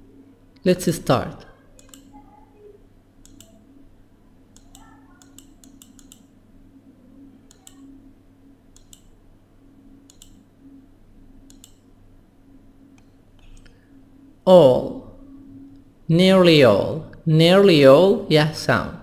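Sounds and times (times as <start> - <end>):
faint low hum: 0.0 - 19.0
computer mouse clicks: 1.8 - 2.2, 3.2 - 3.6, 4.5 - 6.3, 7.5 - 7.9, 8.7 - 9.2, 10.0 - 10.4, 11.4 - 11.8, 12.9 - 13.8.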